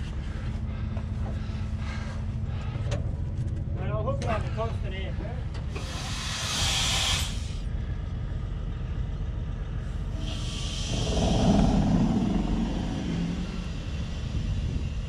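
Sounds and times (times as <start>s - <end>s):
compressed air hissing: 5.7s - 7.6s, 10.2s - 15.0s
truck engine idling: 7.3s - 15.0s
low rumble: 7.7s - 15.0s.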